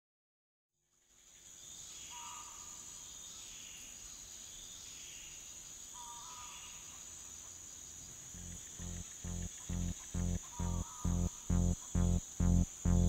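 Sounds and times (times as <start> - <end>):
high cricket-like chirring: 4.0 - 12.9
short paired tones: 8.4 - 13.0.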